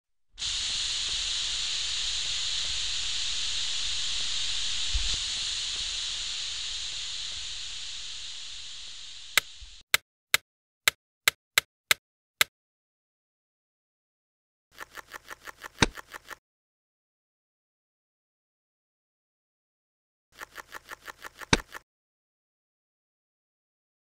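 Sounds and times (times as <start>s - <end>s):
steady hiss: 0.4s - 9.8s
short sharp clicks: 20.4s - 21.8s.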